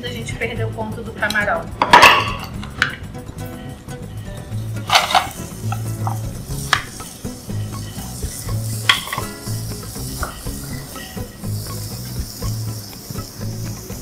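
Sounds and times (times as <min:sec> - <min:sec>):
shrimp sizzling in oil: 0:04.0 - 0:14.0
spatula scraping a pan: 0:04.1 - 0:13.0.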